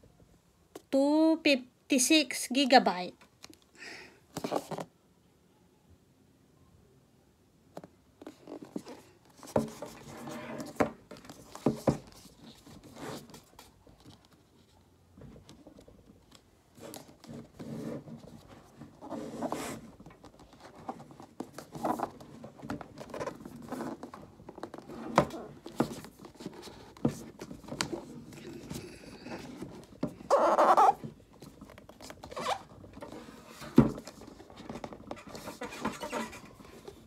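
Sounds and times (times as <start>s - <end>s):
hands handling a cardboard box: 7.8s - 37.0s.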